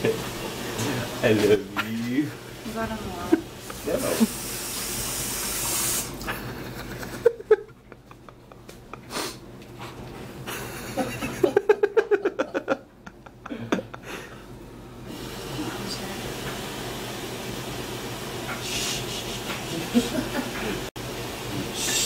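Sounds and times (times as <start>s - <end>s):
person giggling: 6.2s - 9.3s, 10.5s - 14.5s, 18.9s - 20.9s.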